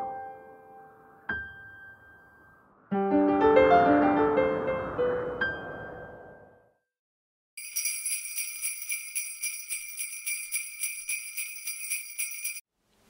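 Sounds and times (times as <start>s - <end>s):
sleigh bells shaken: 7.6s - 12.7s.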